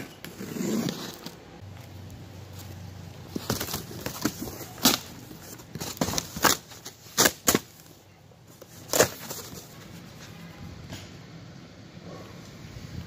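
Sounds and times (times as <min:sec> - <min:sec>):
cardboard box rustling: 0:03.3 - 0:07.6.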